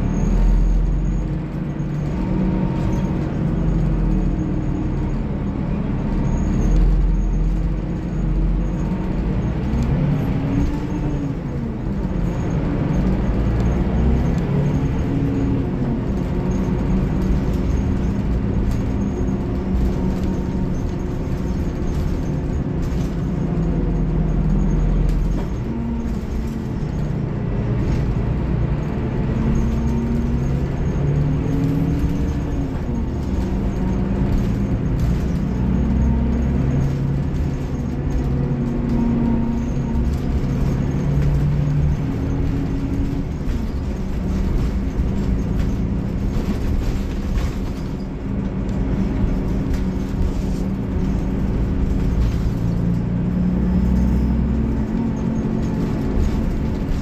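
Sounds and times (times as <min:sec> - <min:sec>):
bus diesel engine accelerating: 0:00.0 - 0:57.0.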